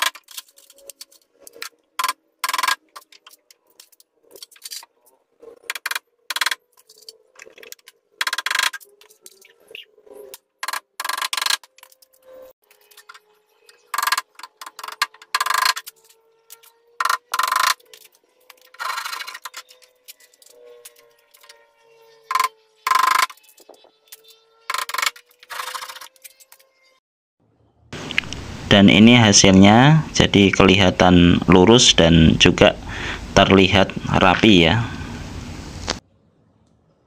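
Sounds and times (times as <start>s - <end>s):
faint steady hum: 27.6s - 37.0s.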